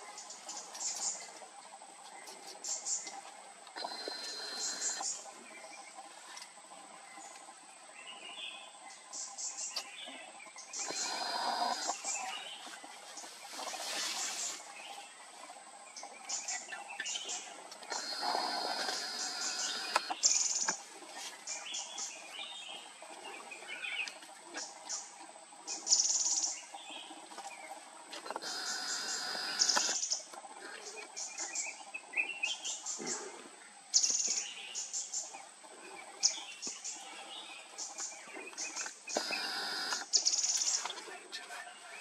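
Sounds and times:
small birds chirping: 0.0s - 42.0s.

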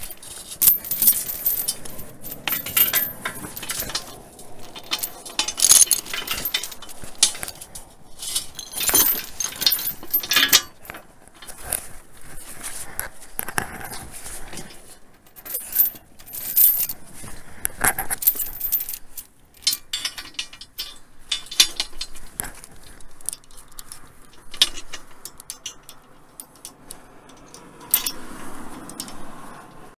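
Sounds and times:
sharp metal clanks: 0.0s - 11.6s, 19.6s - 22.3s, 24.3s - 28.2s
metal clinks and rattles: 0.0s - 29.9s.

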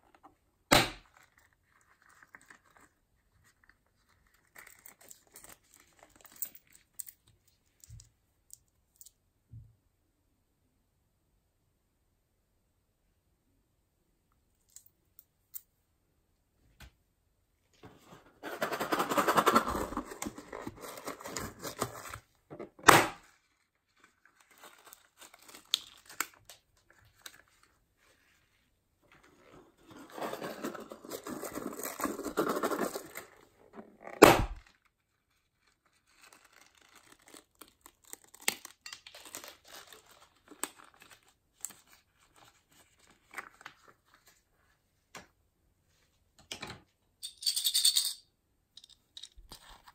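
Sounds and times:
plastic packets crinkling: 23.4s - 27.8s, 34.6s - 43.8s.

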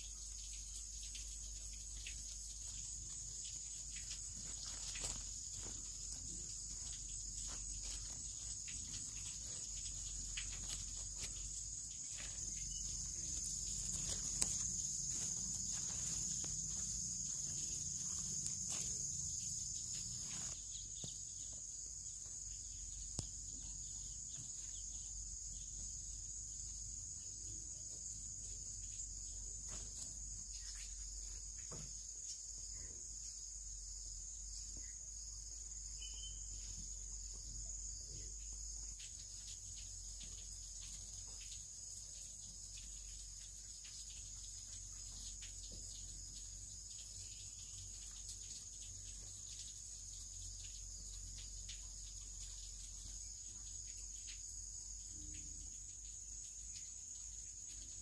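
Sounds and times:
insects shrilling: 0.0s - 58.0s
hands scratching loose soil: 3.9s - 19.0s.

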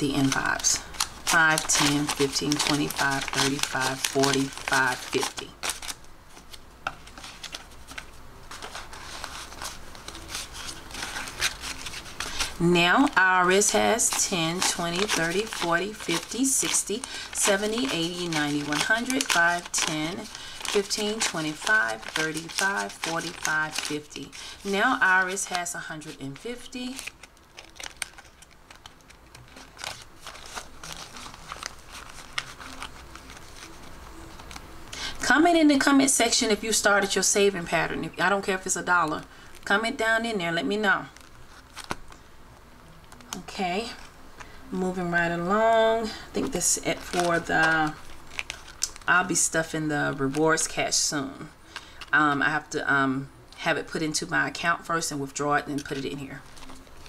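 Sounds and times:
banknotes rustling: 0.0s - 42.3s, 43.0s - 52.8s, 53.6s - 57.0s
crisp snaps of bills: 0.1s - 12.6s, 26.8s - 35.1s, 47.0s - 49.1s.

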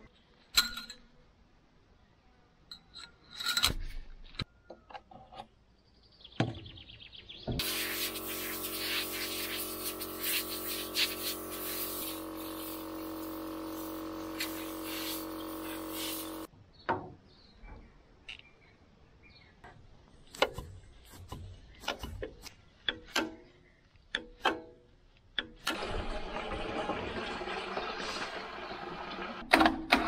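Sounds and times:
machine hum with hiss: 7.6s - 16.5s.

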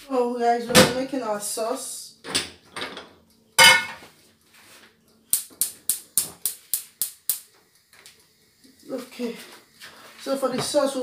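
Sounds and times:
hob spark igniter clicking: 5.3s - 7.6s.

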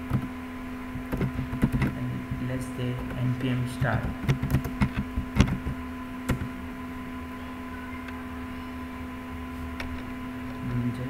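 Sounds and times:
electrical hum: 0.0s - 11.0s
keyboard keystrokes: 1.1s - 2.0s, 3.8s - 6.5s.

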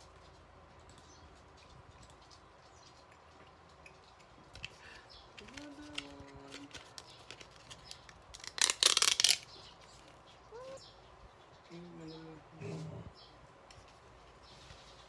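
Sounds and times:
plastic wrapper crinkling: 5.4s - 9.6s
small dog whining: 10.5s - 11.0s.

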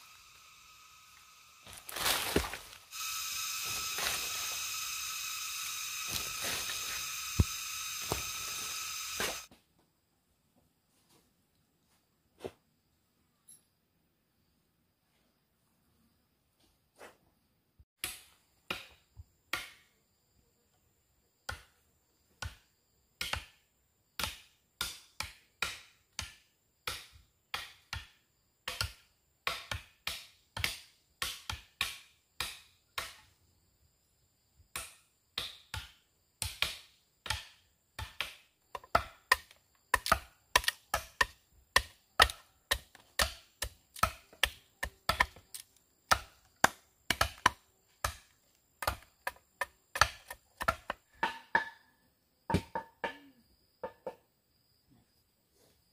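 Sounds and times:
machete chopping: 34.8s - 51.8s.

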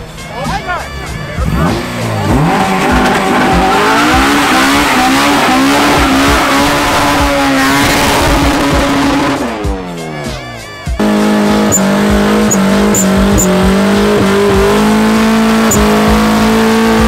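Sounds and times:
car engine revving high: 1.0s - 10.4s, 11.0s - 17.0s
tyres screeching: 10.2s - 16.9s.

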